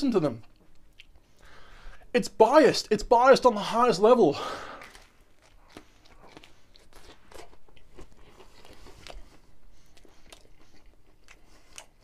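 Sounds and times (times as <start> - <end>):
person chewing crunchy pizza: 4.4 - 12.0.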